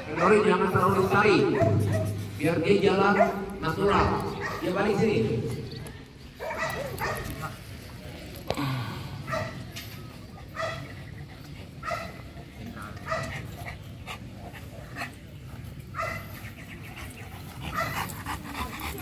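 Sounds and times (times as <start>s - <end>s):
dog barking: 0.1s - 0.4s, 1.5s - 2.2s, 3.1s - 4.7s, 6.4s - 7.3s, 9.3s - 9.5s, 10.6s - 10.9s, 11.8s - 12.1s, 13.0s - 13.3s, 16.0s - 16.3s.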